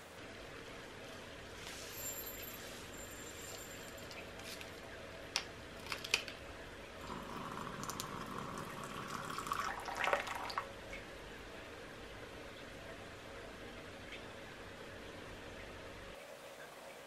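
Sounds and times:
water pouring into a cup: 0:07.0 - 0:10.7.

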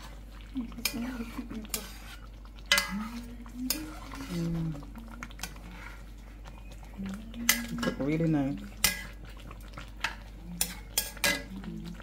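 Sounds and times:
metal utensil scraping cooking pot: 0:00.8 - 0:04.7, 0:07.4 - 0:11.6.

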